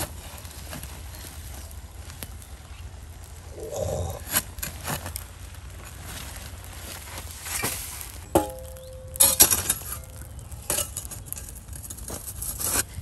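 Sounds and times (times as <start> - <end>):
shovel scraping through ash and soil: 0.0 - 1.7, 3.7 - 13.0
shovel ringing clink: 8.3 - 11.0.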